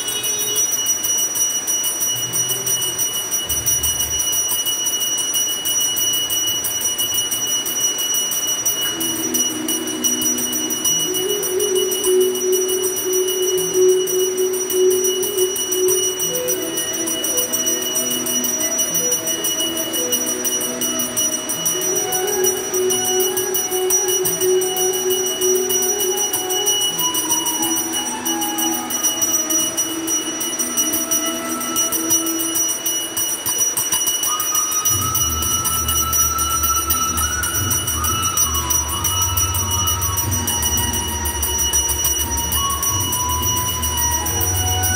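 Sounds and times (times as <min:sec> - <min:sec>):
hand bell ringing rapidly: 0:00.0 - 0:44.9
slow devotional melody: 0:02.4 - 0:44.9.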